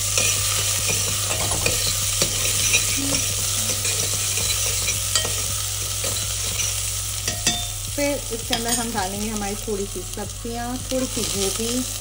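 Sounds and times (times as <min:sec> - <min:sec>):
metal spoon scraping pan: 0:00.0 - 0:07.7
onions sizzling in pan: 0:00.0 - 0:12.0.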